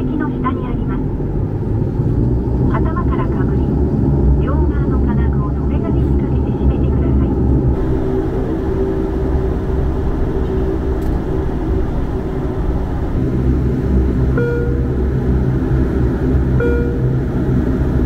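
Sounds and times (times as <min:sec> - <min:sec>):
turboprop engines droning: 0:00.0 - 0:18.0
brief high tone: 0:14.4 - 0:15.0, 0:16.6 - 0:17.2.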